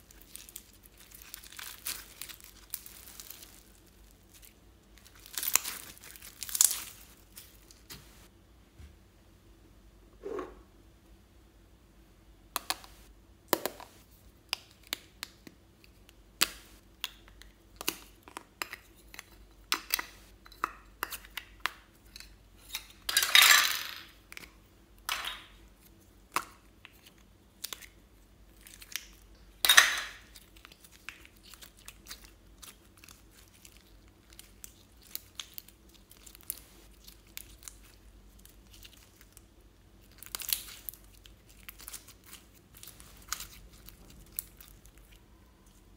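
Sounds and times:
slime squelching: 0:30.2 - 0:45.9.

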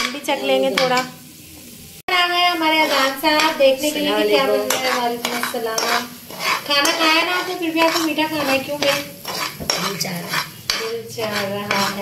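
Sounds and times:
child talking: 0:03.6 - 0:04.8.

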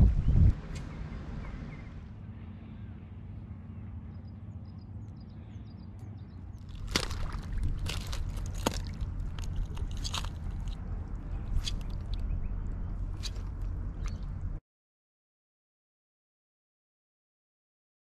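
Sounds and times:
low rumble: 0:00.0 - 0:14.6
sharp crunches and clicks: 0:06.6 - 0:14.5.

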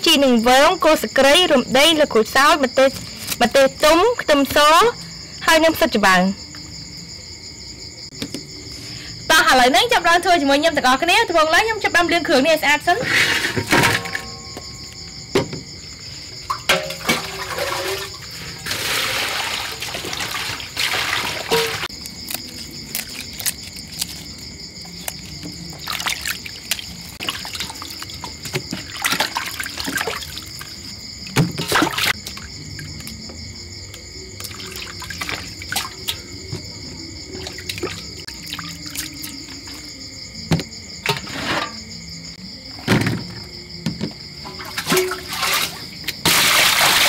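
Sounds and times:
night insects chirring: 0:00.0 - 0:47.0
plastic colanders clattering: 0:13.0 - 0:14.5, 0:16.5 - 0:21.8, 0:31.4 - 0:32.1, 0:42.8 - 0:47.0
water splashing in a metal bowl: 0:16.4 - 0:24.2, 0:24.9 - 0:33.1, 0:34.4 - 0:36.3, 0:37.2 - 0:39.8, 0:44.4 - 0:47.0.

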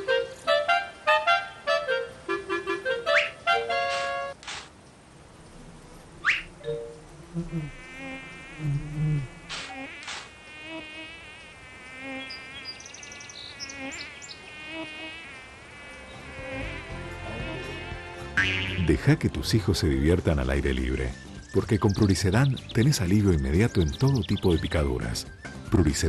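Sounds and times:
mosquito whining buzz: 0:05.6 - 0:18.8.

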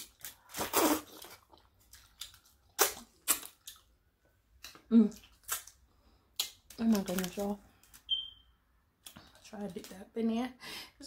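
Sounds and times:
cracks and crunches of eating: 0:00.0 - 0:08.1.

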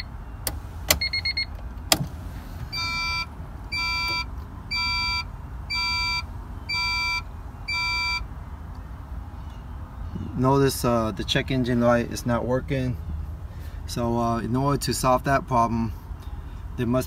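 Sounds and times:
dashboard warning chime beeping: 0:00.0 - 0:01.6, 0:02.6 - 0:08.3.

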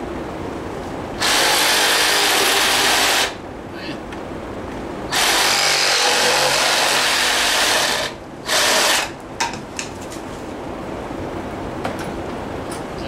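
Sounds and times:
reciprocating saw cutting metal tube: 0:01.2 - 0:03.4, 0:05.1 - 0:09.2.

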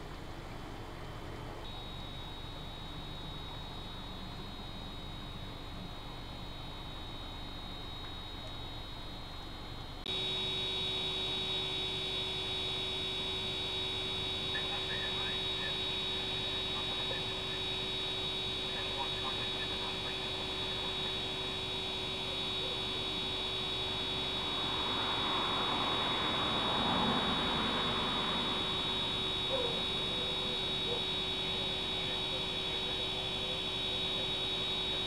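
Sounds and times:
electrical hum: 0:00.0 - 0:35.0
high thin whine: 0:01.6 - 0:35.0.

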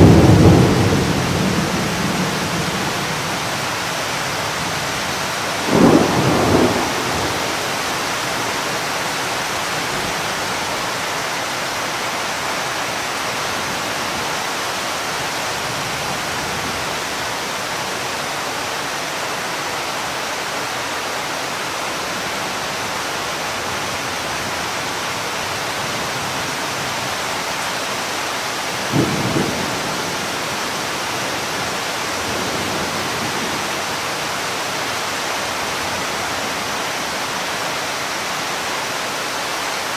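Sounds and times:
thunder claps: 0:00.0 - 0:03.4, 0:05.6 - 0:08.5
steady rain: 0:00.0 - 0:39.9.

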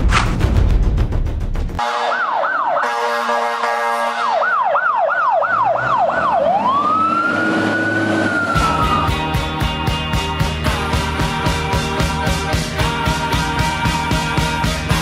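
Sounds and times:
music: 0:00.0 - 0:01.8, 0:08.5 - 0:15.0
electronic siren yelping and wailing: 0:02.0 - 0:03.6, 0:04.2 - 0:09.5.

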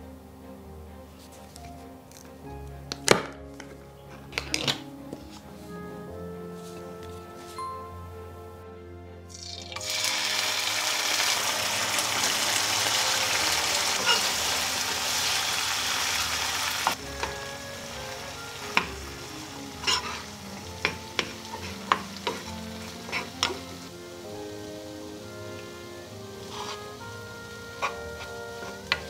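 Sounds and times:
food sizzling in frying pan: 0:09.3 - 0:29.0
spatula scraping pan: 0:19.6 - 0:23.7, 0:26.4 - 0:29.0.

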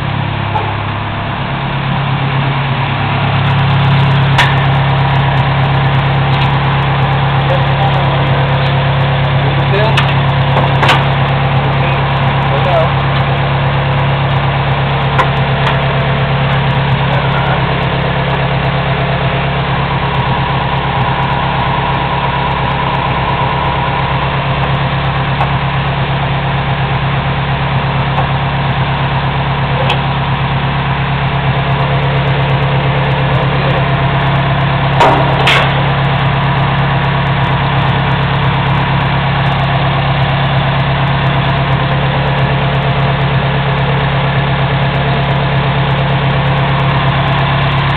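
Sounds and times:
loud mechanical drone: 0:00.0 - 0:47.9
sharp metallic knocks: 0:34.9 - 0:36.1.

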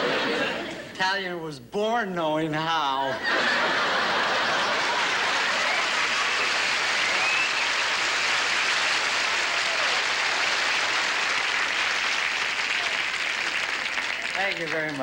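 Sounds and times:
audience applauding: 0:03.9 - 0:15.0.

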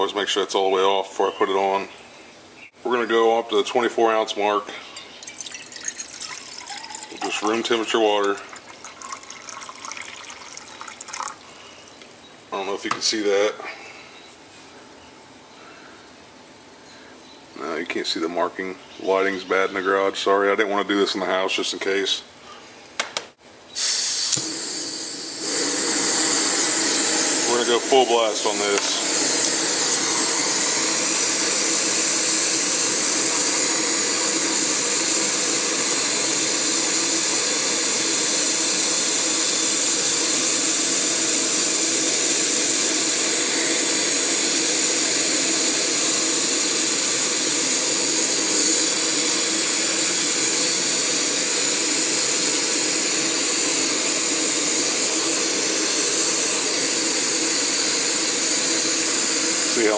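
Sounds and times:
gas stove burner hissing: 0:05.3 - 0:11.3, 0:23.8 - 0:59.9.

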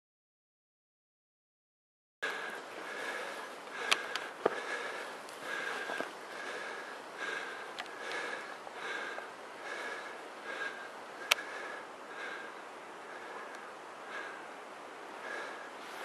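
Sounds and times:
person breathing quickly: 0:02.2 - 0:16.0.

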